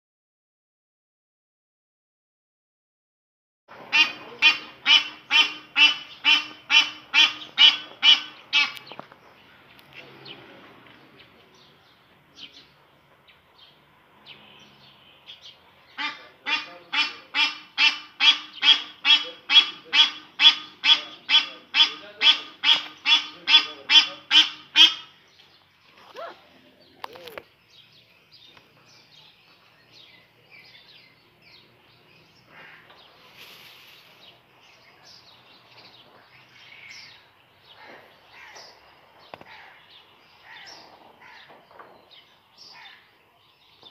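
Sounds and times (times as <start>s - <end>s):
geese honking: 3.8s - 9.0s, 16.0s - 25.2s.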